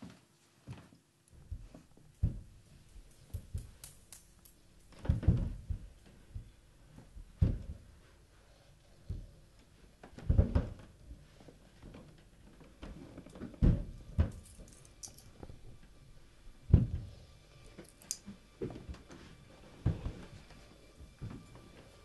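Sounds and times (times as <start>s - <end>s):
dull thumps: 1.4s - 2.6s, 4.9s - 8.1s, 10.0s - 12.1s, 12.8s - 14.5s, 16.6s - 17.2s, 18.6s - 21.8s.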